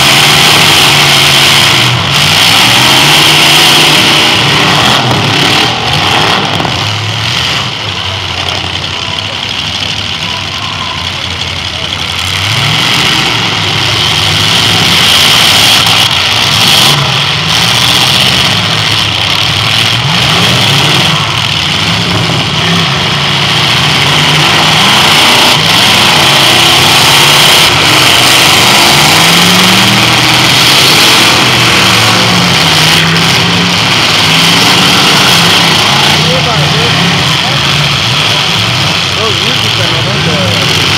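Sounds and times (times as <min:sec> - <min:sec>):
car engines revving: 0:00.0 - 0:40.9.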